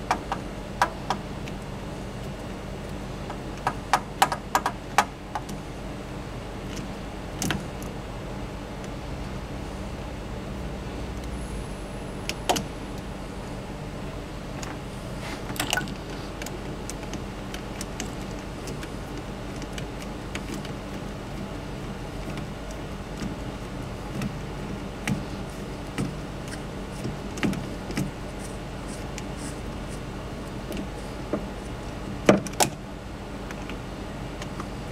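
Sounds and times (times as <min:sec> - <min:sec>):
low hum: 0:05.1 - 0:32.2.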